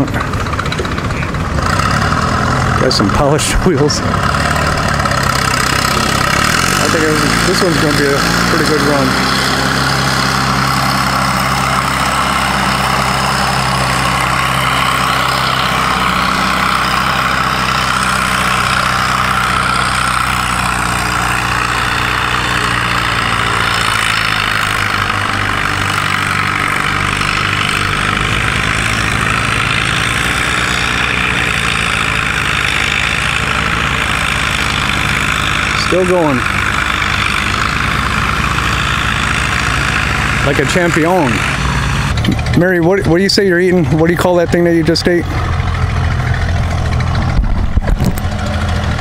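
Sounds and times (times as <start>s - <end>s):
tractor engine under load: 0.0s - 49.0s.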